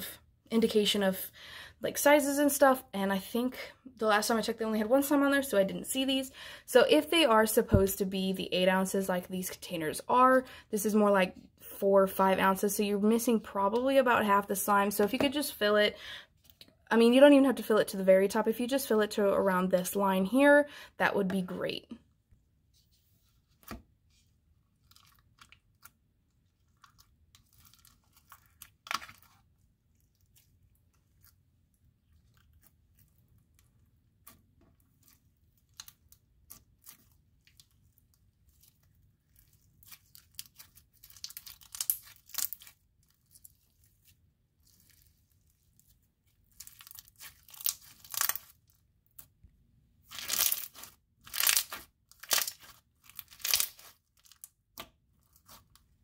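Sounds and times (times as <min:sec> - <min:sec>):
slime crackling: 0:24.6 - 0:49.4, 0:50.0 - 0:56.0.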